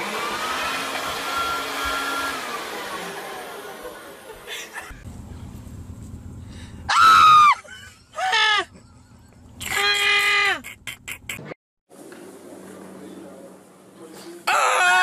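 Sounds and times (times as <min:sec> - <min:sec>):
leaf blower winding down: 0:00.0 - 0:06.8.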